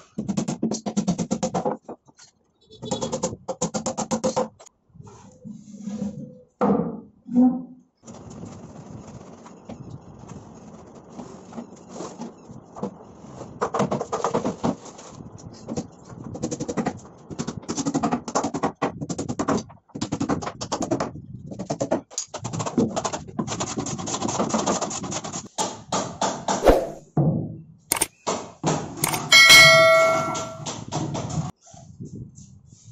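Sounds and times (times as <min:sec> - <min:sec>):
hammer driving small nails: 0:27.9 - 0:28.2, 0:29.0 - 0:30.8.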